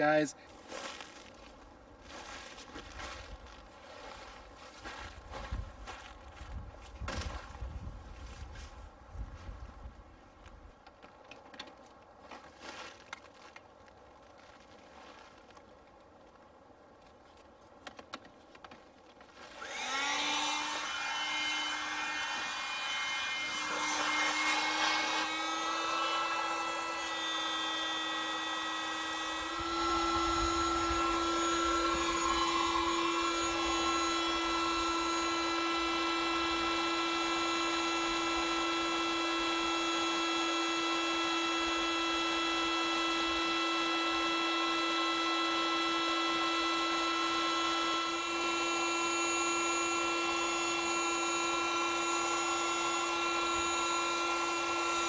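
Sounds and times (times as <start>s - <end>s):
electric air pump whining: 19.3s - 55.0s.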